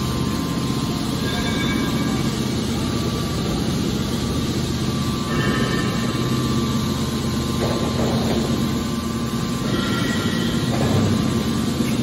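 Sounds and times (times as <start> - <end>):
baler machine hum: 0.0 - 12.0
steady machine whine: 0.0 - 12.0.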